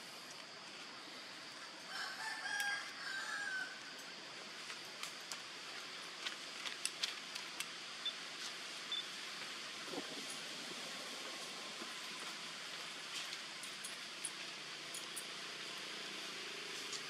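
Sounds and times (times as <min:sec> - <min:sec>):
rooster crowing: 0:01.9 - 0:03.9.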